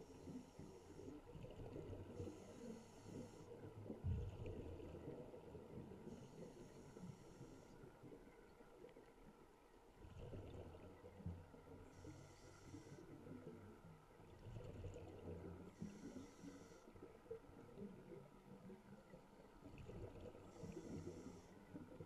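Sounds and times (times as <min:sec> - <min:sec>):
regulator inhale hiss: 0:02.2 - 0:03.7, 0:06.0 - 0:07.9, 0:11.9 - 0:13.4, 0:15.7 - 0:17.0, 0:20.5 - 0:21.8
exhaled bubbles rumbling: 0:03.2 - 0:06.3, 0:10.0 - 0:12.3, 0:13.2 - 0:16.2, 0:16.9 - 0:22.0.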